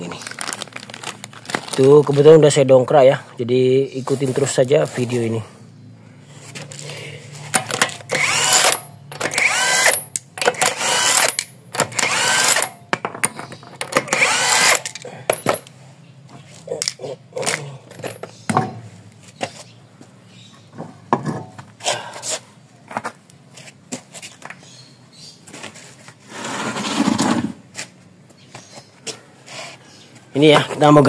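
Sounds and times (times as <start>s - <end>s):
clicks and knocks of wheel removal: 7.5s - 10.8s, 12.9s - 14.2s, 14.8s - 19.5s
impact wrench bursts: 7.5s - 12.8s, 13.8s - 15.7s.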